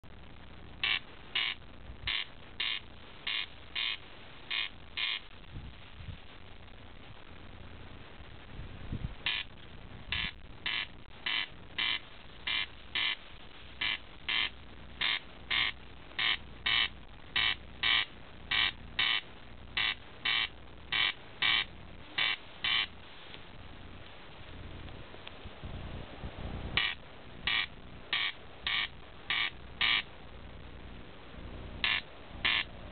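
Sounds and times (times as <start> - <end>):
corncrake rasping call: 0.8 - 5.3, 9.2 - 13.2, 13.8 - 23.0, 26.8 - 30.1, 31.8 - 32.7.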